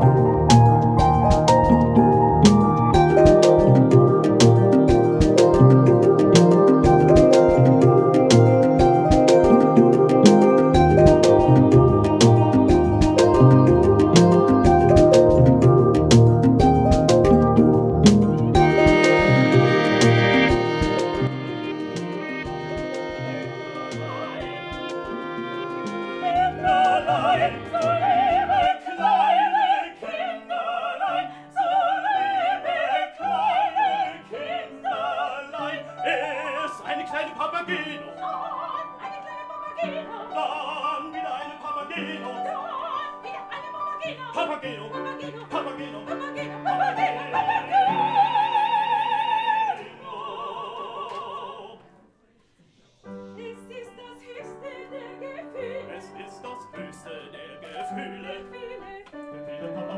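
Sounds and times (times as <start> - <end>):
piano accompaniment: 0.0 - 29.4
opera singing with vibrato: 18.6 - 51.9, 53.4 - 59.9.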